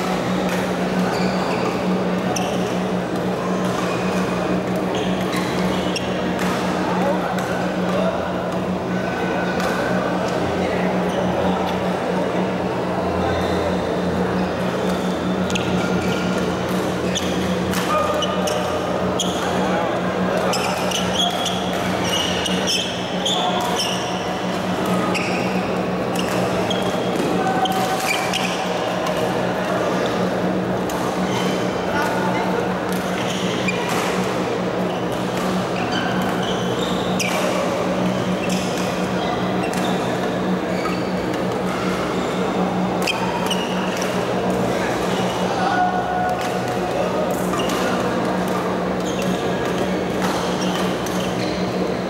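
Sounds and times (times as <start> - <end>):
murmur of voices: 0.0 - 52.0
shoes squeaking on court: 1.1 - 3.2, 3.8 - 6.4, 20.4 - 29.4, 33.1 - 42.4, 43.0 - 44.4, 47.5 - 51.9.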